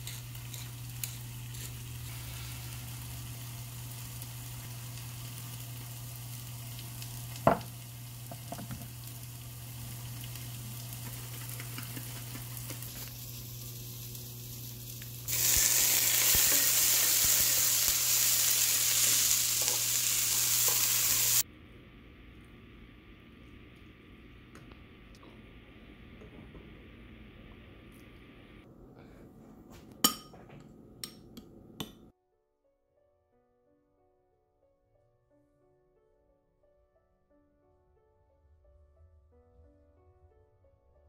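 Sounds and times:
food sizzling in a pan: 0.0s - 21.4s
low steady hum: 18.7s - 32.1s.

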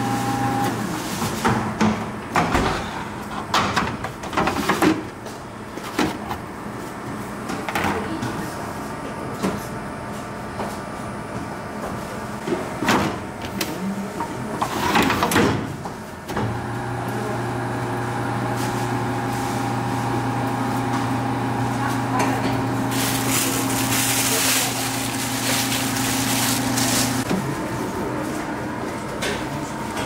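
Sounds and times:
dough press motor humming: 0.0s - 1.0s, 16.2s - 27.4s.

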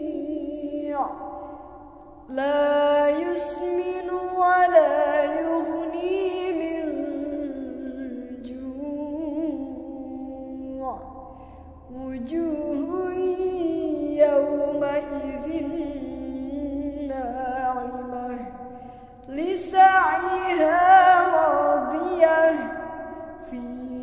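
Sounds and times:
woman reciting melodically: 0.0s - 24.0s.

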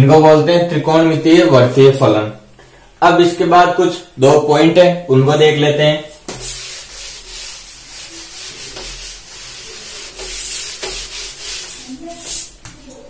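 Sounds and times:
eraser rubbing whiteboard: 6.1s - 12.8s.

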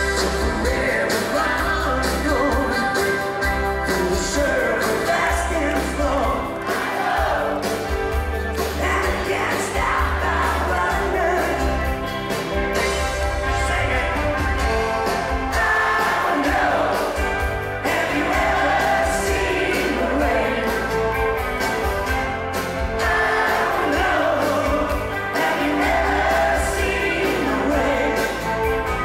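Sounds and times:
person singing lead vocals: 0.0s - 7.7s, 8.6s - 11.9s, 15.3s - 21.0s, 22.9s - 29.0s
live rock band: 0.0s - 29.0s.

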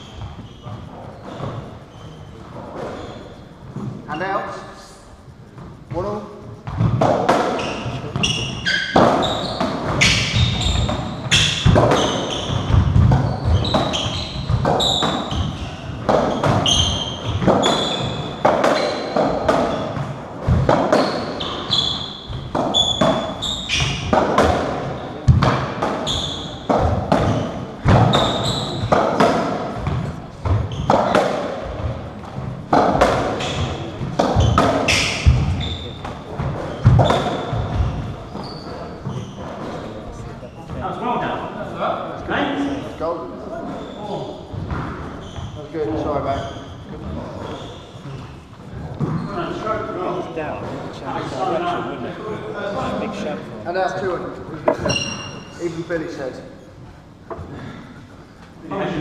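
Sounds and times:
ball hitting rackets and walls: 0.0s - 1.8s, 5.6s - 40.1s, 44.5s - 45.6s, 47.0s - 49.3s, 54.7s - 55.5s
shoes squeaking on court: 0.0s - 4.3s, 5.5s - 41.0s, 43.6s - 49.7s, 54.7s - 55.8s.

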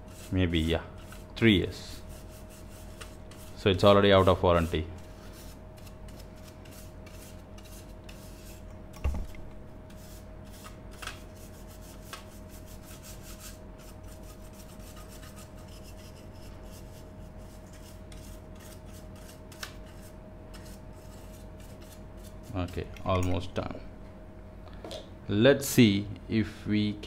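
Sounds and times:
brush scratching circuit board: 0.0s - 8.6s, 9.9s - 22.9s
thump: 9.0s - 9.4s.

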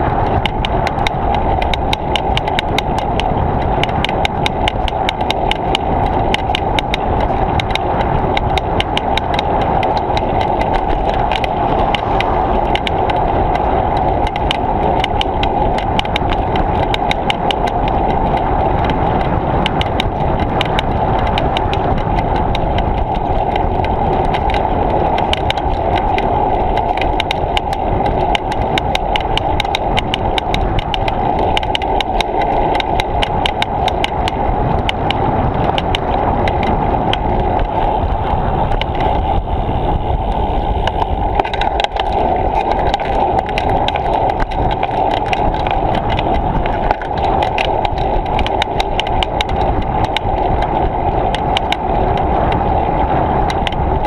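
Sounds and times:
bicycle rolling noise: 0.0s - 54.0s
rapid regular ticking: 0.0s - 54.0s
wind: 0.0s - 54.0s.

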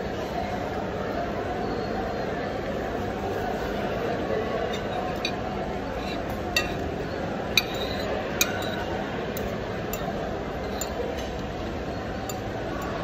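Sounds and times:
cutlery clinking on a plate: 4.7s - 5.4s, 6.0s - 6.9s, 7.5s - 11.6s.

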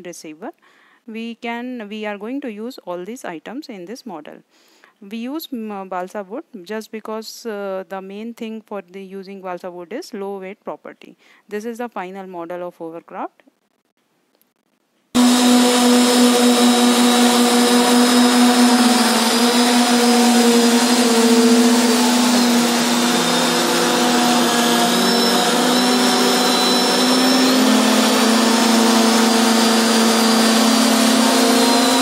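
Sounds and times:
hovercraft motor whine: 15.2s - 32.0s.

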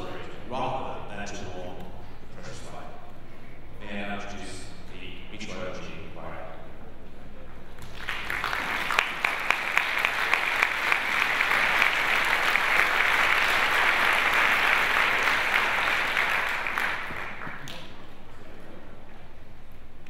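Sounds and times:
audience applauding: 7.8s - 17.9s.

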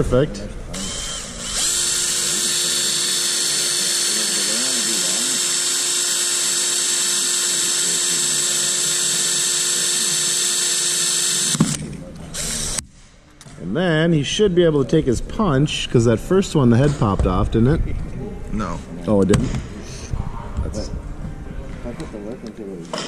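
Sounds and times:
power drill whining: 0.7s - 12.8s.

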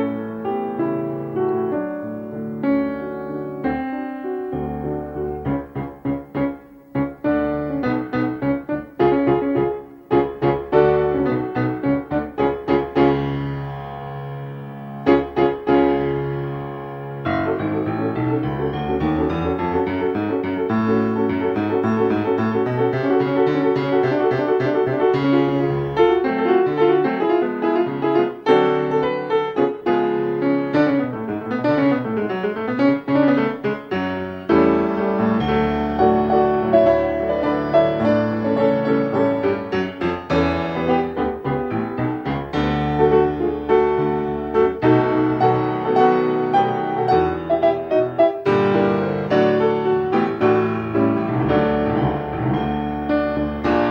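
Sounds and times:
piano music: 0.0s - 53.9s.

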